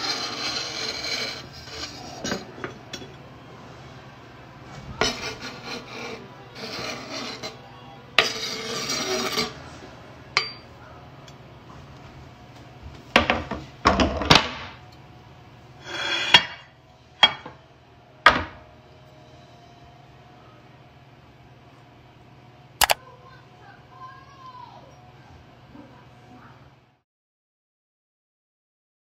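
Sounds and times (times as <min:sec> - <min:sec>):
knife scraping cutting board: 0:00.0 - 0:02.5, 0:05.0 - 0:07.6, 0:08.2 - 0:09.6
dishes and utensils knocking: 0:01.8 - 0:03.2, 0:10.4 - 0:10.7, 0:13.1 - 0:14.8.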